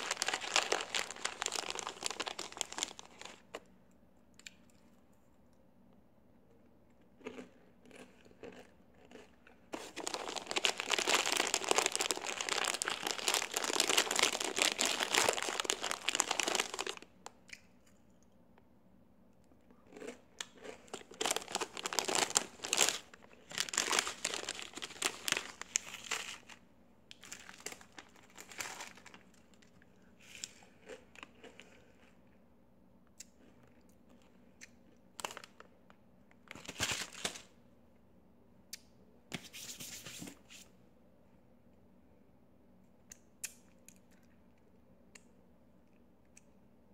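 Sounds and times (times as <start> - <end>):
chips crunching: 0.0 - 3.5, 7.2 - 17.1, 19.9 - 26.5
chip bag crinkling: 0.0 - 3.6, 7.2 - 17.2, 19.9 - 31.6, 36.5 - 37.5.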